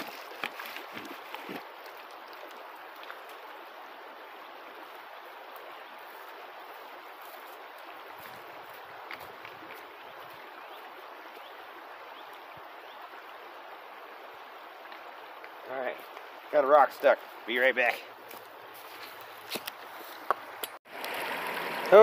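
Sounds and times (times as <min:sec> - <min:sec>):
creek water over gravel: 0:00.0 - 0:22.0.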